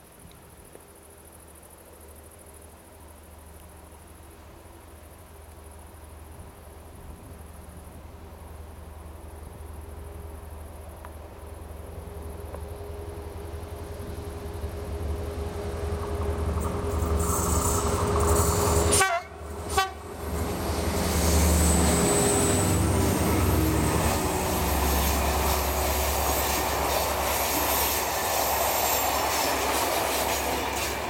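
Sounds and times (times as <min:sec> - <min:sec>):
diesel locomotive engine drone: 0:01.0 - 0:31.0
train wheels on rails: 0:11.0 - 0:31.0.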